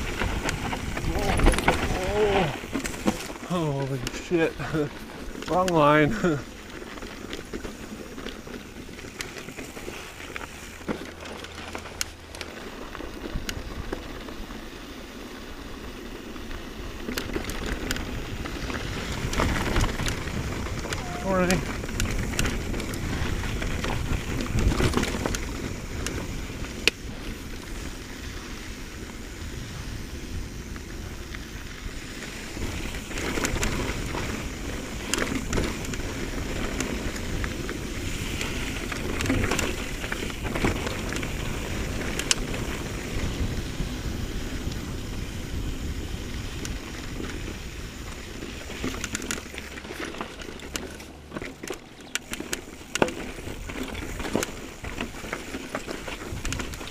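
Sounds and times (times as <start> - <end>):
bike clicking and rattling over rocks: 0.0 - 56.9
bike tyre noise on dirt: 0.0 - 56.9.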